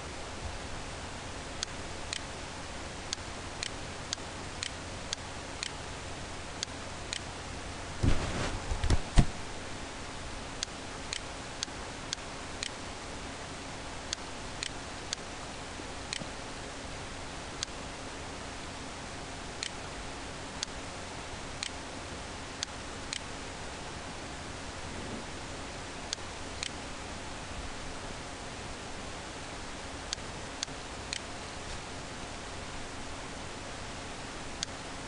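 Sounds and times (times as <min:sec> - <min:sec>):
rustling and low thumps: 0:08.0 - 0:09.5.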